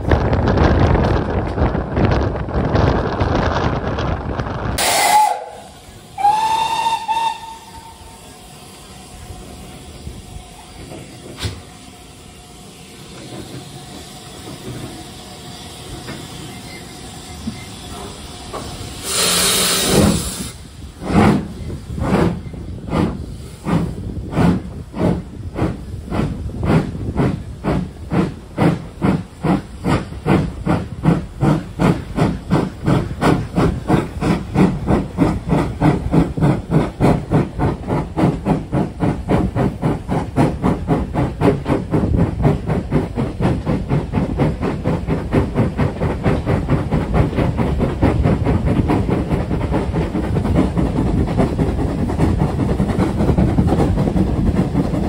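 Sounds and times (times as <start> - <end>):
steam locomotive exhaust beats: 0.0 - 55.0
loud blast of steam: 4.8 - 8.8, 17.7 - 26.9
steam hiss: 4.8 - 55.0.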